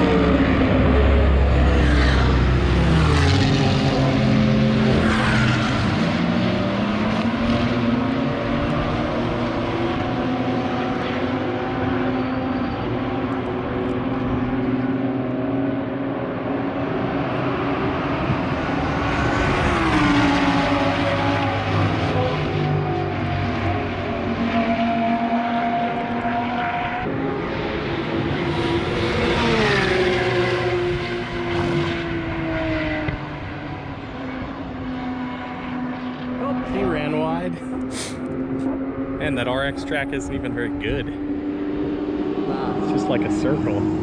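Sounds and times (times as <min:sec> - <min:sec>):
car engine revving: 0:00.0 - 0:44.0
steady engine note: 0:36.3 - 0:44.0.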